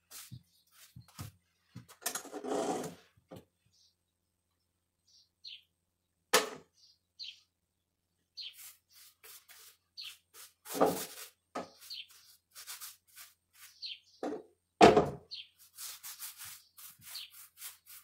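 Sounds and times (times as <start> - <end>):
brush scrubbing on wall: 0.0 - 1.4, 8.4 - 14.0, 15.3 - 18.0.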